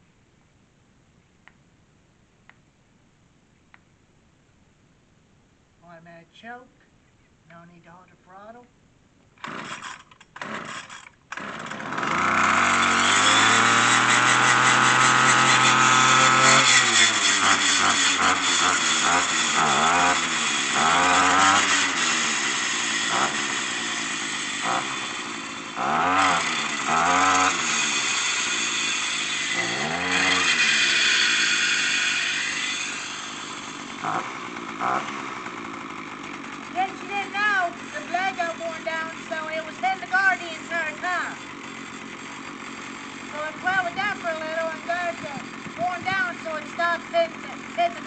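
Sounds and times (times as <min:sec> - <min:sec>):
starter cord pulls: 0:09.4 - 0:18.4, 0:43.2 - 0:48.0
brush cutter engine revving: 0:09.4 - 0:48.0.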